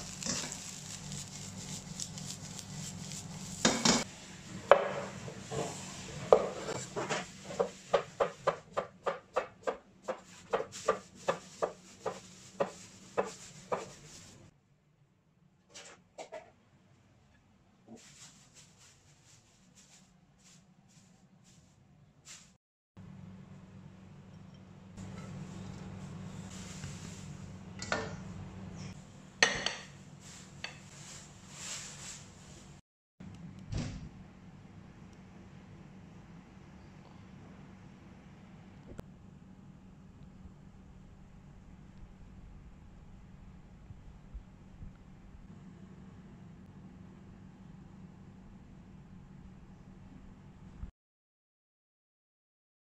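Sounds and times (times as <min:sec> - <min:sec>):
steady low hum: 0:23.0 - 0:31.1, 0:32.3 - 0:50.9.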